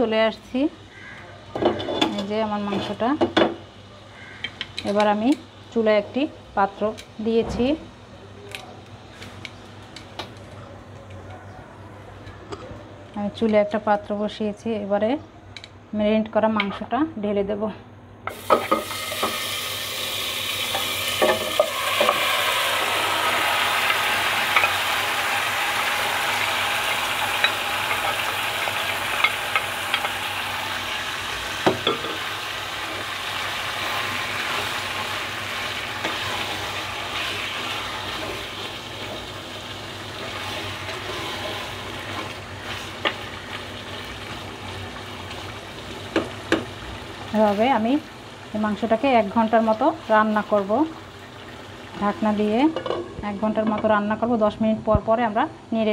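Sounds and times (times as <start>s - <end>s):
meat sizzling in hot oil: 18.3s - 52.6s.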